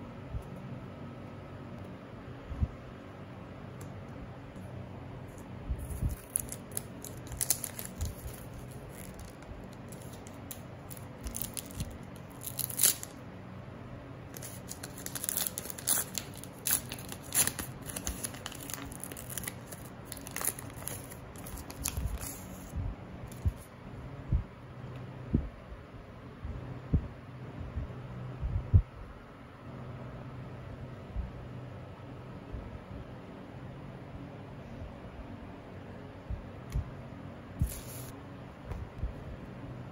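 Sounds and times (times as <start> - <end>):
foil wrapper tearing and crinkling: 5.8 - 13.2, 14.3 - 22.6.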